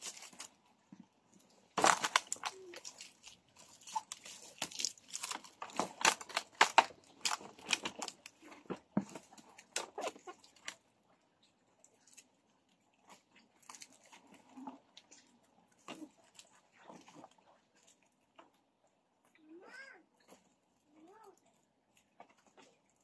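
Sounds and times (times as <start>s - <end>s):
plastic strap and wood crackling: 0.0s - 10.9s.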